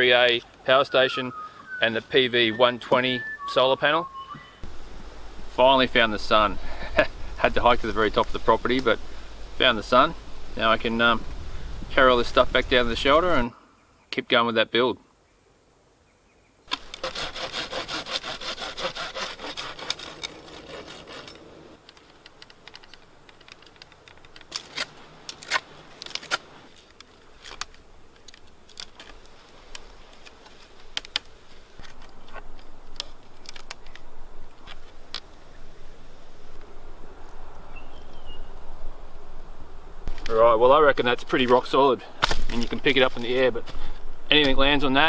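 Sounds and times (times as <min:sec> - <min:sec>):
saw cutting through wood: 0:16.7 - 0:21.7
knife clicking and scraping stick: 0:19.5 - 0:26.4.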